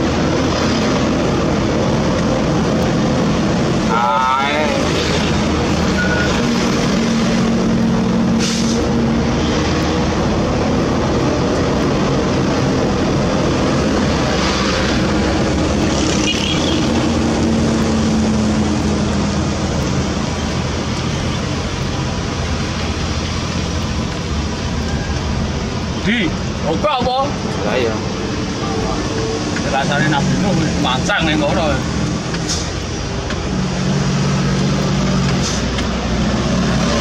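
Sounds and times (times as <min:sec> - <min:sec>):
diesel engine running: 0:00.0 - 0:37.0
short hisses: 0:08.4 - 0:08.8.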